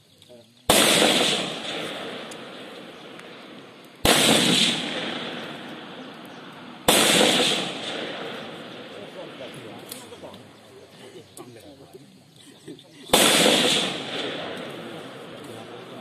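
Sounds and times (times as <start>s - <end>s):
gunshots echoing: 0.7s - 10.6s, 13.1s - 16.0s.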